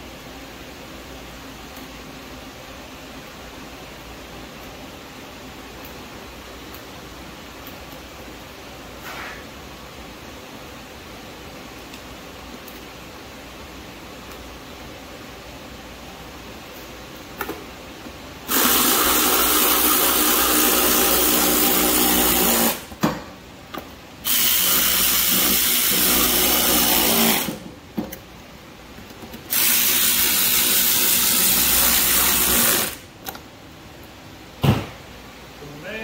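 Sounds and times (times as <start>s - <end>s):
electric ratchet motor spinning: 18.5s - 22.9s, 24.2s - 27.7s, 29.5s - 33.0s.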